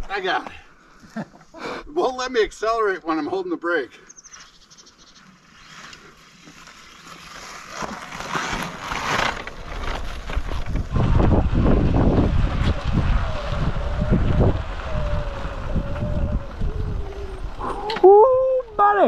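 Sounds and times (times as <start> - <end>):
tyre rumble: 7.3 - 18.6
wind buffeting microphone: 9.8 - 19.0.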